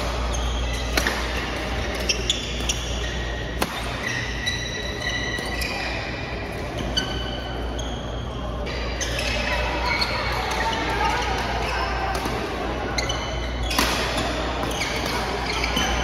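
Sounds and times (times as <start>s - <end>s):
rackets hitting shuttlecock: 0.0s - 4.4s, 13.6s - 16.0s
shoes squeaking on court: 0.0s - 12.1s, 12.9s - 16.0s.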